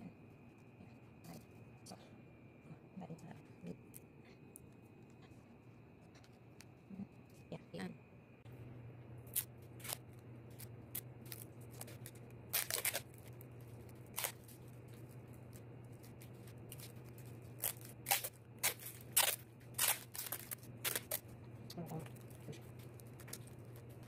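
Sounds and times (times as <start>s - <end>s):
wrapping paper crinkling: 9.4s - 24.0s
snips: 17.6s - 21.2s.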